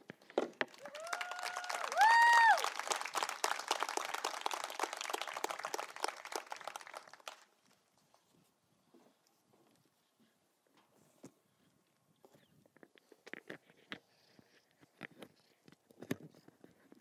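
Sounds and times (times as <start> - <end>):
small crowd applauding: 0.5 - 7.8.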